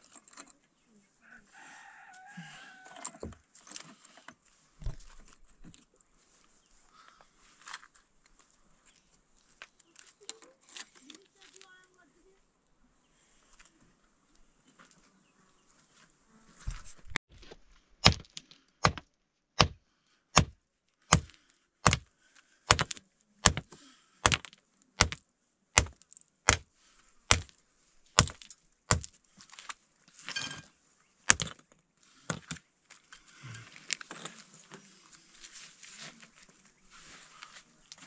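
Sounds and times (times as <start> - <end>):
hammer striking stone: 18.0 - 19.8, 20.4 - 22.0, 22.7 - 25.2, 25.8 - 26.7, 27.3 - 27.5, 28.2 - 29.1, 31.3 - 31.5.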